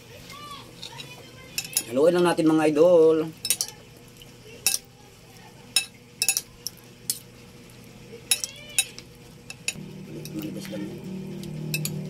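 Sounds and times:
metal spoons clinking on plate: 0.8s - 2.0s, 3.4s - 3.8s, 4.6s - 4.9s, 5.8s - 6.5s, 8.3s - 10.5s, 11.7s - 12.0s.

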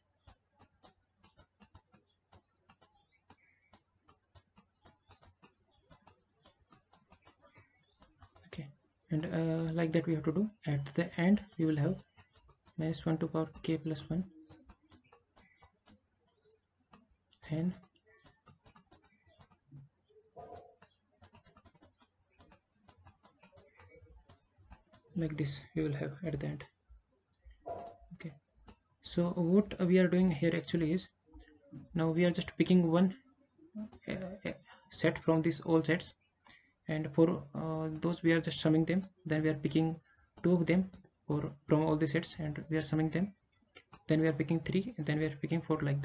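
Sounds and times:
faint pen clicks and taps: 0.1s - 8.5s, 11.4s - 25.4s.

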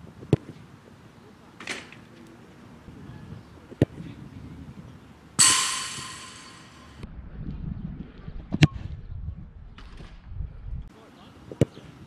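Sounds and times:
ball hitting metal with clang: 5.4s - 7.0s.

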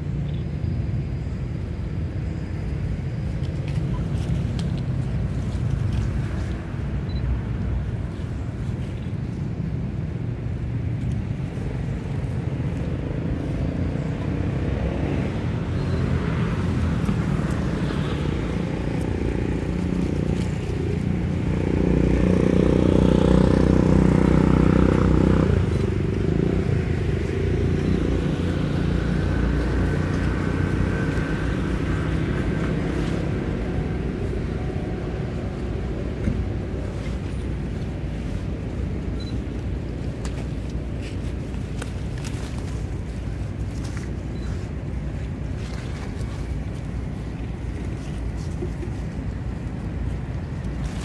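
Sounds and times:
low outdoor rumble: 0.0s - 51.0s
vehicle engine passing: 12.8s - 38.8s.

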